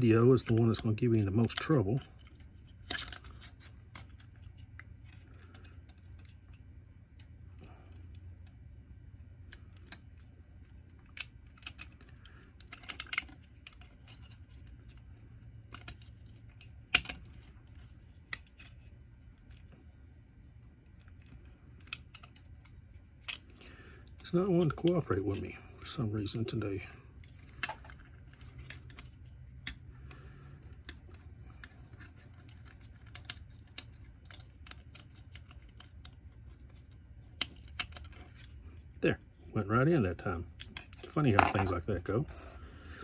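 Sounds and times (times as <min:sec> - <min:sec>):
faint low hum: 0:00.0 - 0:43.0
hard plastic clicks and scrapes: 0:09.4 - 0:26.5, 0:27.2 - 0:38.9.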